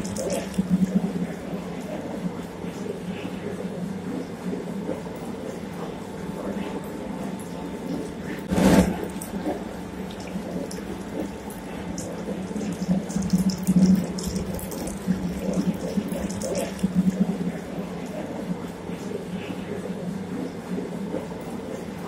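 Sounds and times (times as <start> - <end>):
oil press motor hum: 7.5 - 18.8.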